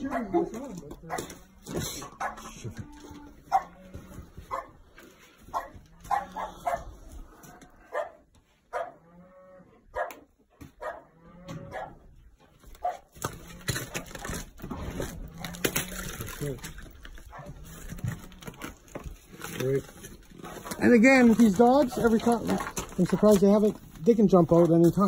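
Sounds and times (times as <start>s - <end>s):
animals moaning: 0.0s - 4.5s, 5.8s - 8.0s, 11.1s - 11.8s, 13.2s - 19.0s
pens knocking and rattling: 13.2s - 25.0s.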